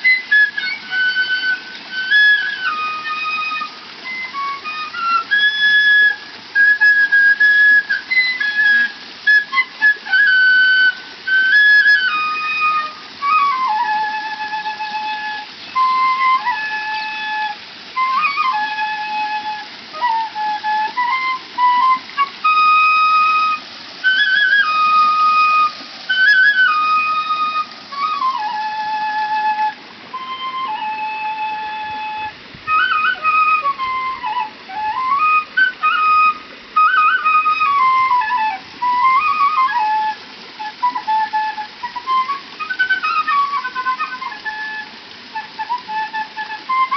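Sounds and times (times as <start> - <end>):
bamboo flute melody: 0.0 - 46.9.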